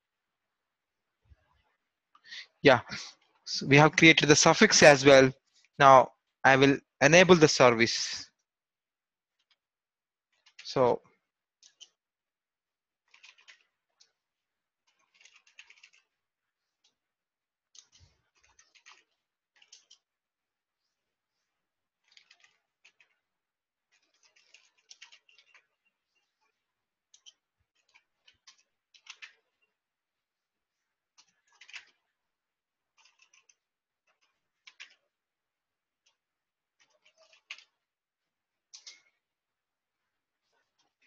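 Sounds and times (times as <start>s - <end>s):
faint keyboard typing: 10.3s - 12.0s, 13.0s - 17.1s, 17.7s - 20.2s, 22.0s - 23.3s, 23.9s - 29.8s, 31.0s - 32.2s, 32.8s - 35.2s, 36.0s - 37.9s, 38.6s - 39.2s.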